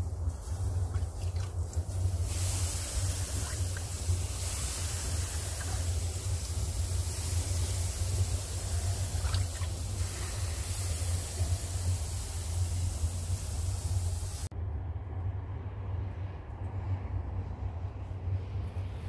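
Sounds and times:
low rumble and hiss: 0.0s - 19.0s
water dripping: 0.7s - 2.0s, 5.3s - 10.1s.

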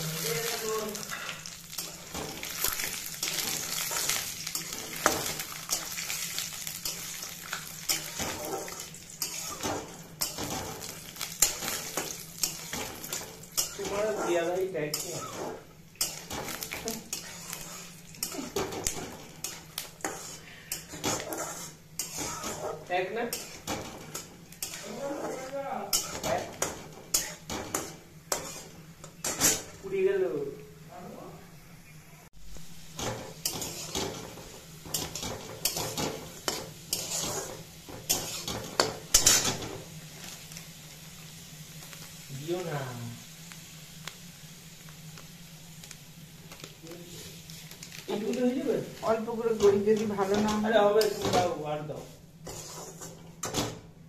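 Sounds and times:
metal spatula scraping a pan: 0.0s - 29.8s, 33.0s - 40.5s, 48.2s - 53.7s
peanuts frying in oil: 0.0s - 31.3s, 32.4s - 54.0s.

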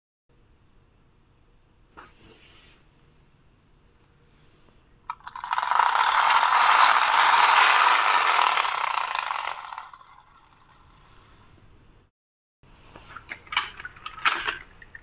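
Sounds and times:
toy click: 5.1s - 10.8s
toy friction motor whirring: 5.1s - 11.0s.

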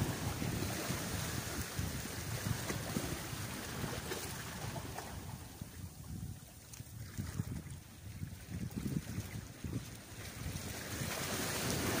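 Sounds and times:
wind gusting against microphone: 0.0s - 12.0s
sea washing: 9.1s - 12.0s.

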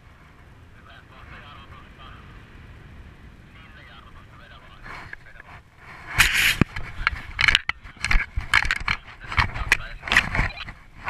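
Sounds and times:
fabric rustling and scraping on snow: 5.8s - 7.3s.

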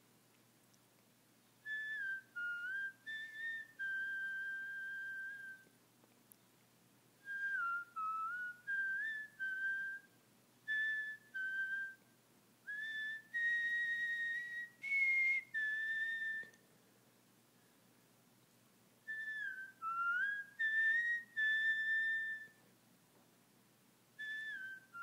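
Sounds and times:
person whistling a tune: 1.7s - 5.7s, 7.2s - 10.1s, 10.7s - 12.0s, 12.7s - 16.6s, 19.1s - 22.6s, 24.2s - 25.0s.

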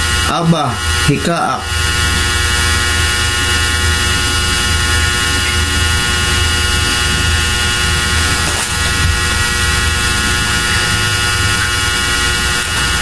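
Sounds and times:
electrical hum and buzz: 0.0s - 13.0s.

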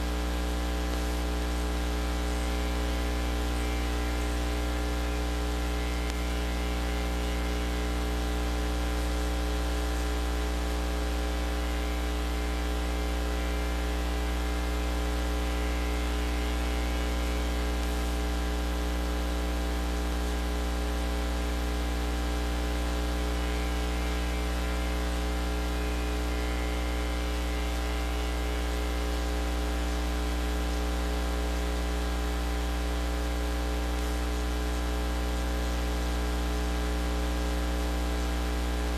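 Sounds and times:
electrical mains hum: 0.0s - 20.7s, 21.4s - 38.9s
constant hiss: 0.6s - 9.2s, 23.3s - 28.7s.

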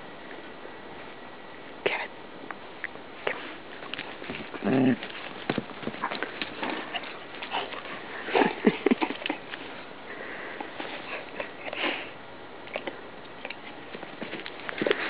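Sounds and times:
dog snuffling: 3.2s - 12.2s
dog paws crunching on snow: 3.3s - 11.9s, 13.6s - 15.0s.

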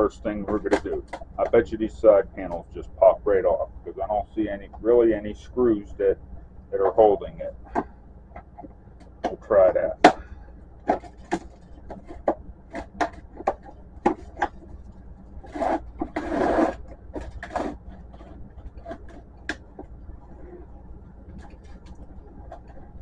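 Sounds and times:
plastic scraping and rubbing: 0.2s - 3.7s, 10.8s - 23.0s
sharp plastic clicks and knocks: 0.4s - 1.7s, 7.6s - 14.8s.

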